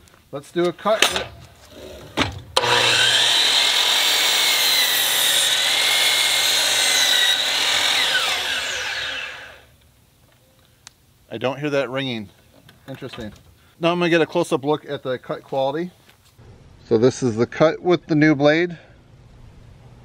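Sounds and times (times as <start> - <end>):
saw blade cutting wood: 2.6 - 9.7
miter saw whining: 2.6 - 9.8.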